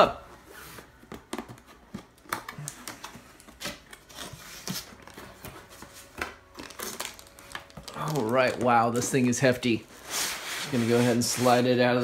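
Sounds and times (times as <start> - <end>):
cardboard rustling and scraping: 3.2 - 12.0.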